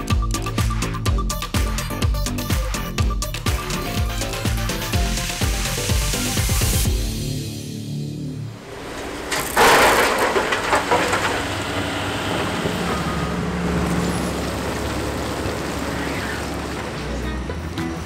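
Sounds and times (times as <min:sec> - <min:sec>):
heavy machinery diesel rumble: 0:08.5 - 0:18.0
soil and stones tipped out: 0:09.1 - 0:12.0.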